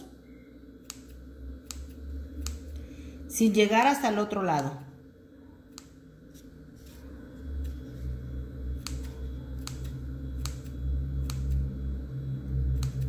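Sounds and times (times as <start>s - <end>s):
low steady hum: 0.0s - 13.0s
scissors blades clicking: 0.8s - 2.7s.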